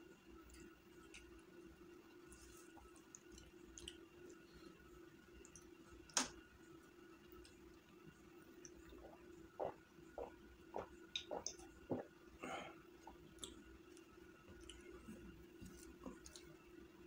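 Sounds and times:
person gulping a drink: 8.7s - 13.6s
breathy exhale: 12.4s - 12.8s.

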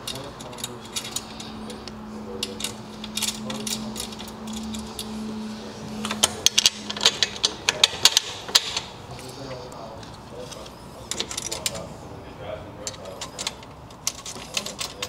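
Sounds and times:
metallic clicks of bolts and nuts: 0.0s - 5.1s, 12.8s - 15.0s
faint steady hum: 0.0s - 15.0s.

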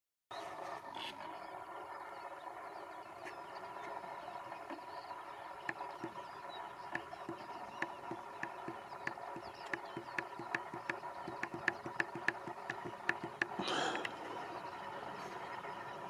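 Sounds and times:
sharp ticks: 5.7s - 6.2s, 6.9s - 13.6s.

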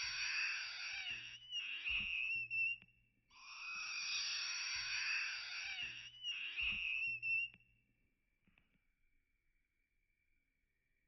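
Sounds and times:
baby monkey screeching: 0.0s - 2.0s, 3.4s - 6.8s.

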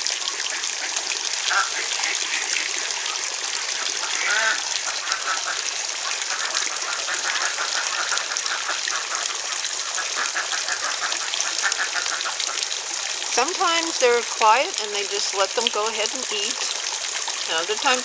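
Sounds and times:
running water: 0.0s - 18.0s
ducks quacking: 4.0s - 12.6s.

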